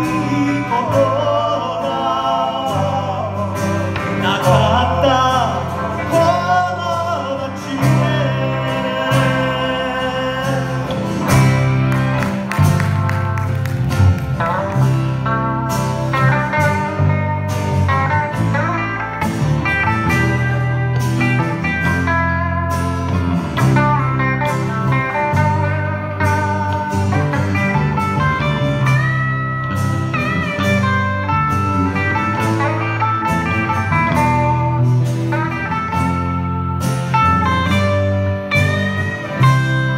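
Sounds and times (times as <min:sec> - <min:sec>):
person singing: 0:00.0 - 0:11.6
electric guitar lead with bent notes: 0:00.0 - 0:39.9
live band playing slow ballad: 0:00.0 - 0:39.9.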